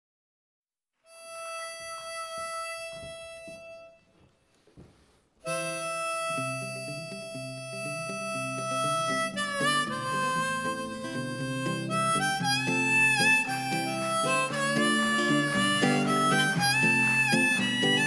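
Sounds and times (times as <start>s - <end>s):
harmonica melody: 1.0s - 4.4s, 5.4s - 18.0s
acoustic guitar accompaniment: 5.4s - 18.0s.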